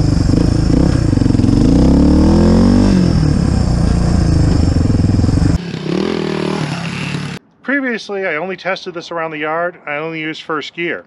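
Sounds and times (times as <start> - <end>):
motorcycle engine running: 0.0 - 7.4.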